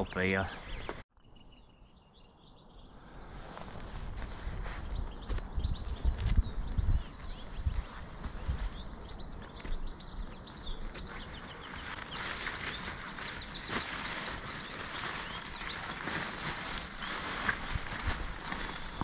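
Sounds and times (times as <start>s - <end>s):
small birds chirping: 0.0s - 19.0s
air mat crinkly rustling: 11.0s - 19.0s.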